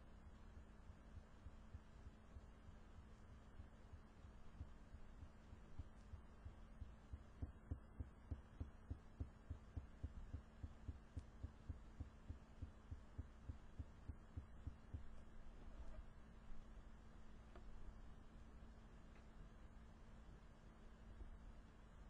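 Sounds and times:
faint hum: 0.0s - 22.0s
rapid low thumping: 0.3s - 15.4s.

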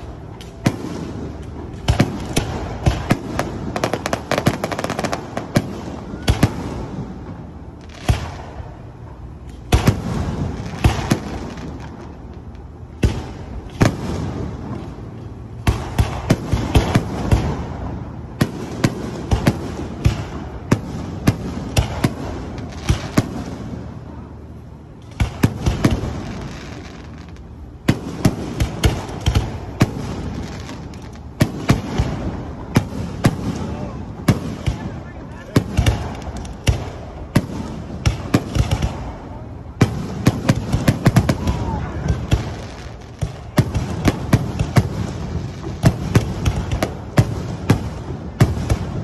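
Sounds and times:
fireworks bursting with sharp bangs: 0.0s - 49.0s
fireworks rumble and crackle: 0.0s - 49.0s.

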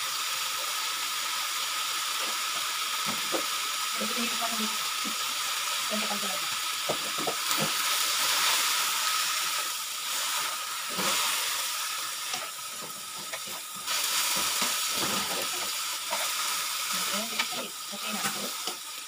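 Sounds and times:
leaves sizzling in a wok: 0.0s - 19.0s.

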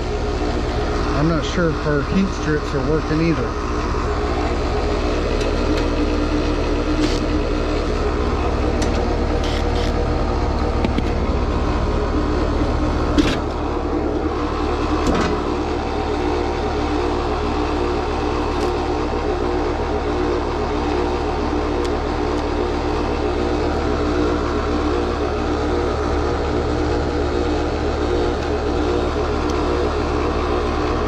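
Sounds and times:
compressor running with grinding noise: 0.0s - 31.0s.

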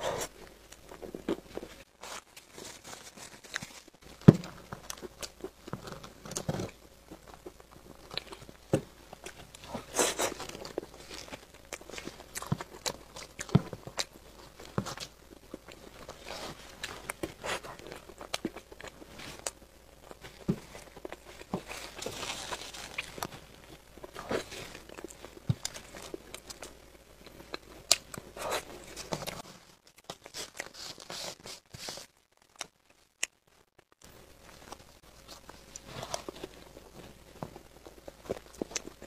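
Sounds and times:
plastic cup crinkling: 0.8s - 6.8s, 20.1s - 26.7s.

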